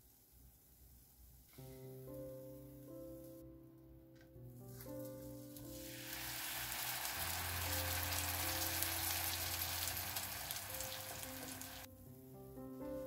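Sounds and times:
soft background music: 0.0 - 13.0
bread sizzling in butter: 5.6 - 11.9.

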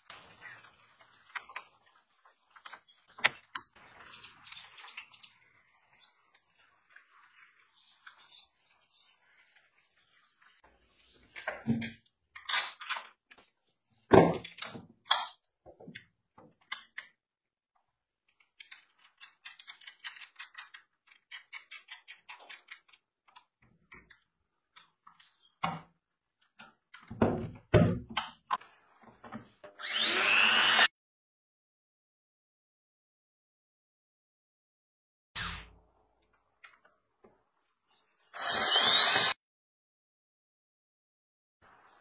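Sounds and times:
cordless drill whirring: 29.8 - 30.9, 38.3 - 39.4.

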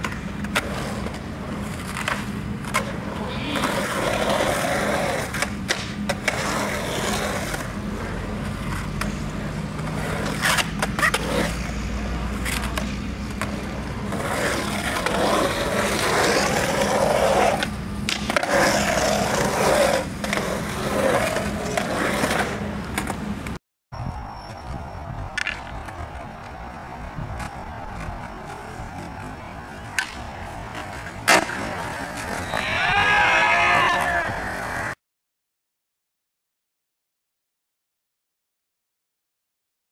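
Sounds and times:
skateboard clacks: 0.0 - 23.6, 25.1 - 32.9
skateboard wheels rolling on concrete: 0.0 - 35.0.

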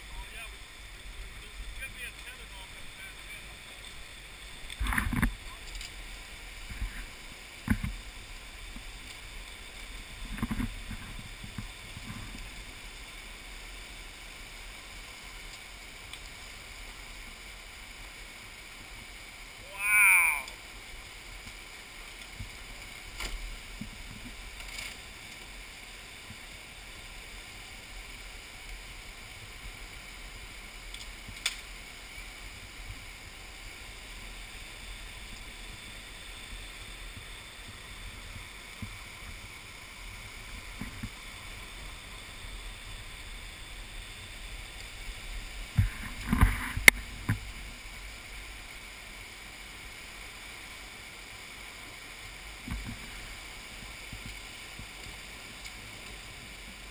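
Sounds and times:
flood water rushing through gorge: 17.3 - 23.0.

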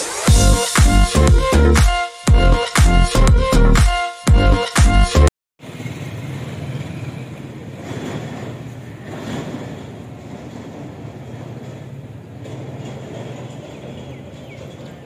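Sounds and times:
intro music: 0.0 - 5.3
train rumble heard on board: 5.7 - 15.0.

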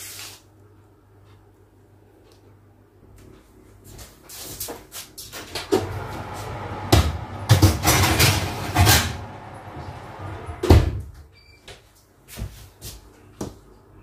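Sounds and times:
kitchen doors knocking: 6.9 - 11.2.

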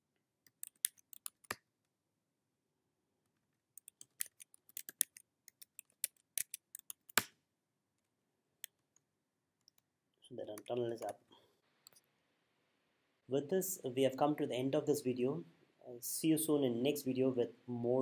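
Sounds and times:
typing on computer keyboard: 3.8 - 7.3.

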